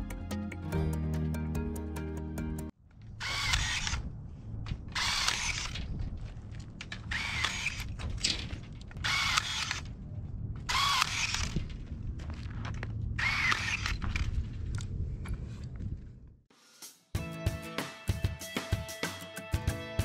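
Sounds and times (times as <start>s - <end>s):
cordless drill spinning: 3.2s - 4.0s, 4.9s - 5.8s, 7.0s - 8.0s, 9.0s - 9.8s, 10.7s - 11.6s, 13.2s - 14.2s.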